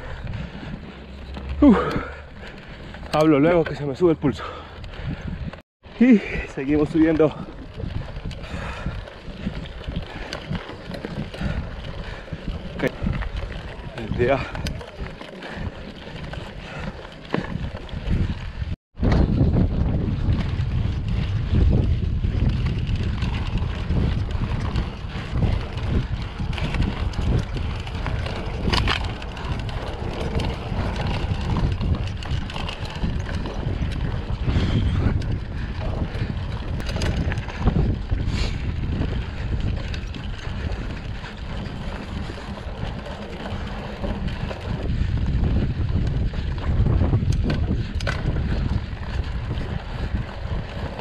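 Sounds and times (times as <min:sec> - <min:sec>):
wind buffeting microphone: 0:00.0 - 0:51.0.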